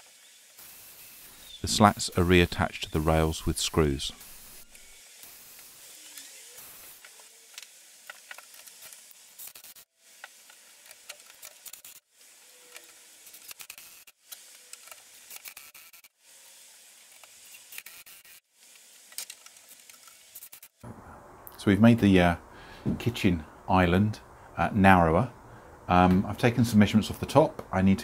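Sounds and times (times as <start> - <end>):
small clicks of screws driven: 12.7 - 16.1.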